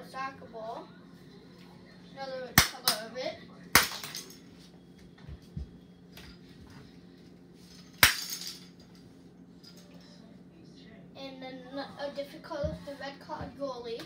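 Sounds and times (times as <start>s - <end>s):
plastic balls cracking on floor: 3.8s - 4.4s, 8.0s - 8.6s.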